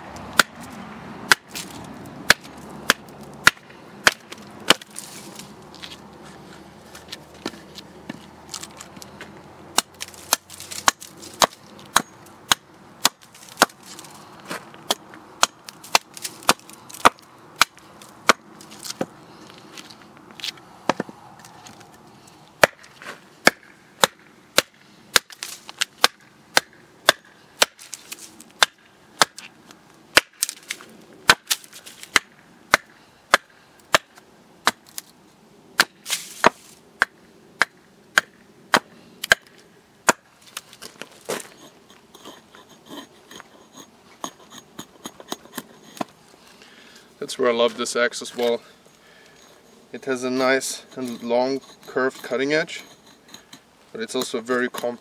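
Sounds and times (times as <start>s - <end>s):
axe chopping wood: 0.3s - 0.7s, 1.3s - 5.4s, 9.7s - 19.1s, 20.9s - 21.1s, 22.6s - 29.5s, 30.1s - 35.0s, 35.8s - 41.5s.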